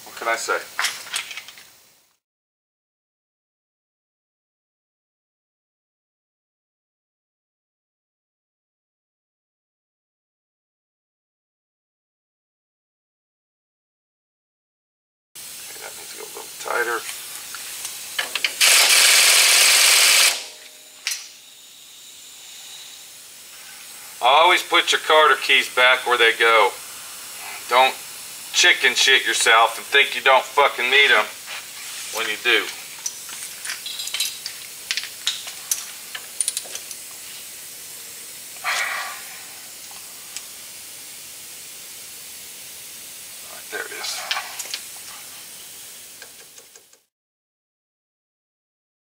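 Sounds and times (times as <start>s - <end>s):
steady hiss: 0.0s - 2.2s, 15.4s - 47.1s
air ratchet running: 17.8s - 21.4s
metal tools clicking: 33.0s - 37.0s.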